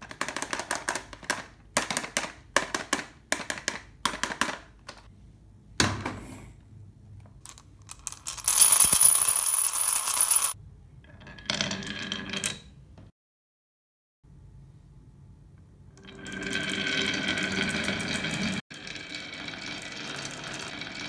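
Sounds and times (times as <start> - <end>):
plastic toy truck clicking and rattling: 0.0 - 5.0
marbles clinking in a glass: 7.9 - 10.6.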